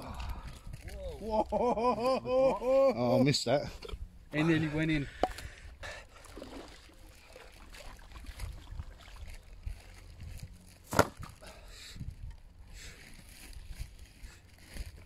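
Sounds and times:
water sloshing around waders: 0:05.9 - 0:11.3.

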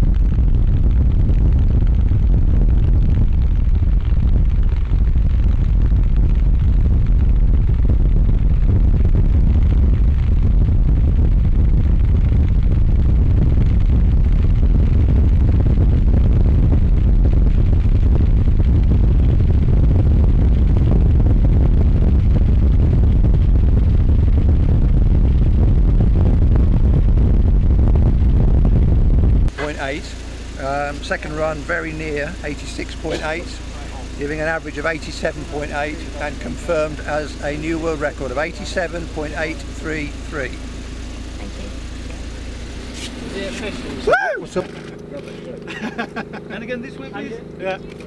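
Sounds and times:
wind buffeting microphone: 0:00.0 - 0:29.6.

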